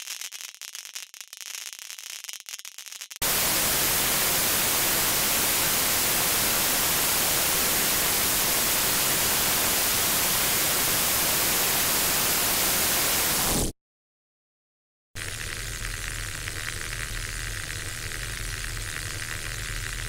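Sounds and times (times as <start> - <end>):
steady white noise hiss: 3.2 - 13.6.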